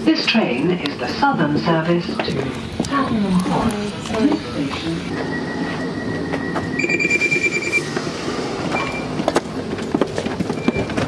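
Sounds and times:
train rumble: 0.0s - 11.0s
short beeps: 5.0s - 8.0s, 8.7s - 9.1s
long electronic tone: 5.1s - 9.1s.

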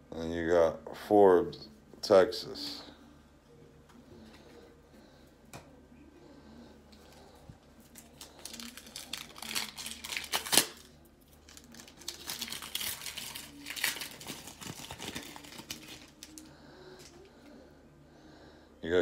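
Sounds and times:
plastic wrapper crinkling: 7.8s - 17.1s
wrapper ripping: 7.8s - 17.1s.

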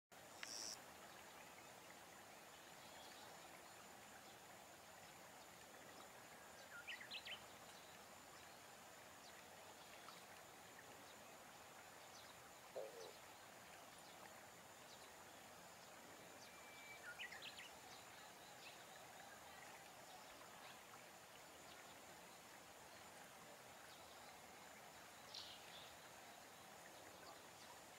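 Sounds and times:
faint steady high tone: 0.4s - 0.8s, 16.3s - 17.4s.

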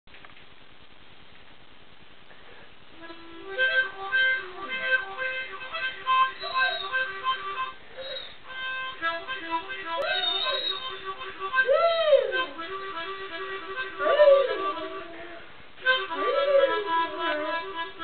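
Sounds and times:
harmonica chords: 2.9s - 18.0s
dog howling: 6.4s - 7.0s, 10.0s - 11.0s, 11.6s - 12.6s, 14.0s - 15.4s, 16.1s - 17.8s.

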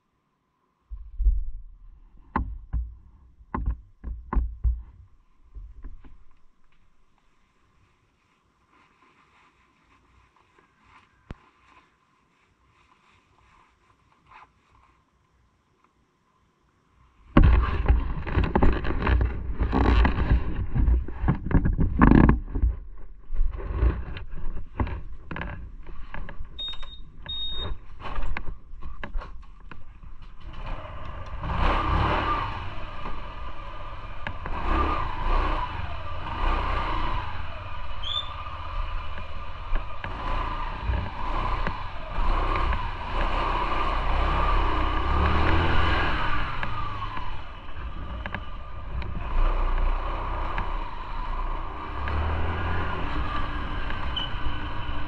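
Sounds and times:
gear clattering and knocking: 0.9s - 7.2s, 17.3s - 32.0s, 36.8s - 55.0s
short high beeps: 26.6s - 27.7s
motorcycle engine running: 29.8s - 55.0s.

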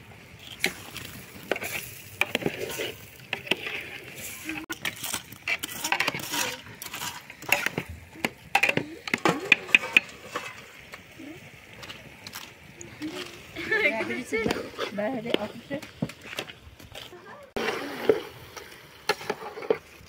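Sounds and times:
coals clinking on metal lid: 4.6s - 11.0s
clinks and knocks against metal pot: 7.4s - 10.6s.

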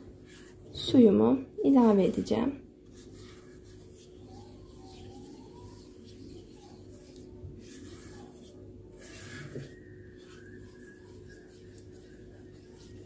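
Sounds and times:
spatula scraping saucepan: 2.9s - 13.0s.

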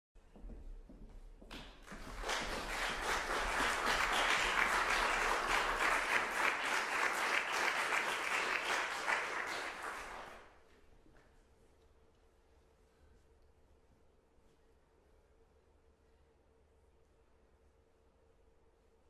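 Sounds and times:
audience applauding: 1.8s - 10.6s.

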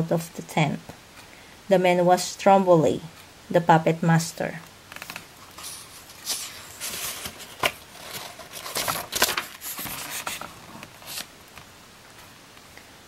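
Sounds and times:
book page turning: 4.9s - 11.7s.

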